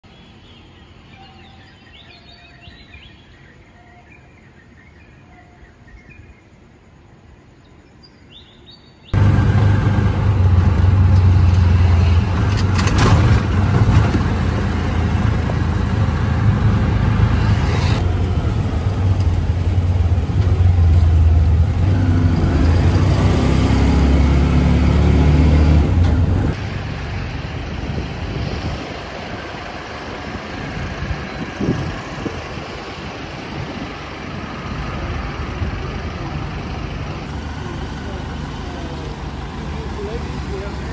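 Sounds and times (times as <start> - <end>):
vehicle engine rumble: 9.1 - 40.9.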